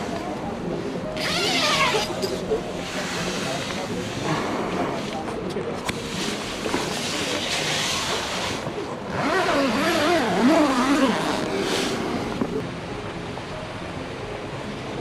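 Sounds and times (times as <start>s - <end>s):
tent fabric rustling: 9.2s - 12.4s.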